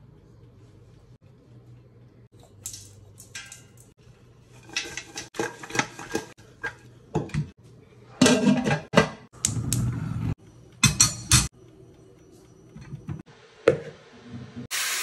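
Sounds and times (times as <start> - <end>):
contents rattling in metal pot: 2.4 - 3.9, 4.6 - 6.4.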